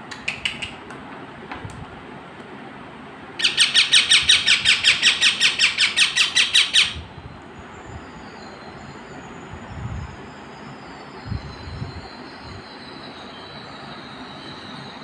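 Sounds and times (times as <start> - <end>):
parrot calling: 3.4 - 7.0.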